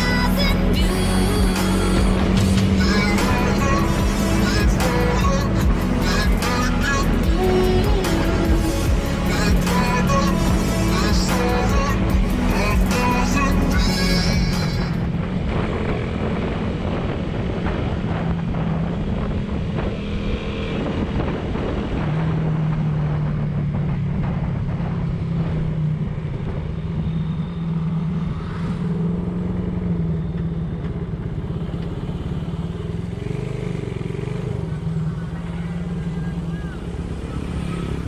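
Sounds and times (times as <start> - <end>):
motorcycle engine running: 0.0 - 38.0
wind rush: 14.0 - 29.4.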